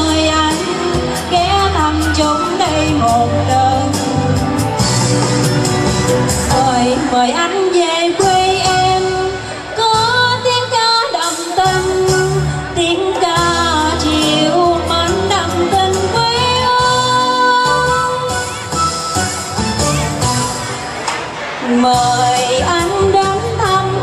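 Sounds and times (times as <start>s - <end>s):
woman singing into microphone: 0.0s - 4.8s, 6.4s - 18.8s, 21.6s - 24.0s
amplified instrumental accompaniment: 0.0s - 24.0s.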